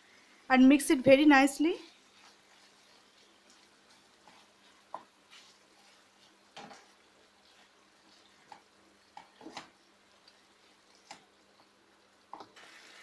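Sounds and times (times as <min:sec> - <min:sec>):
wooden spoon scraping a pan: 0:01.5 - 0:11.2.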